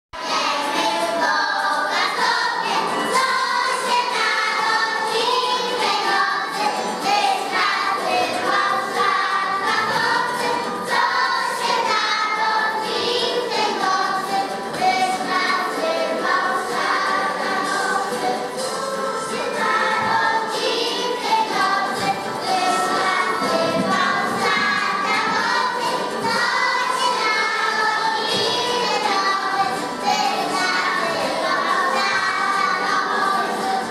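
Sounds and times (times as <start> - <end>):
children singing a carol: 0.2 - 33.9.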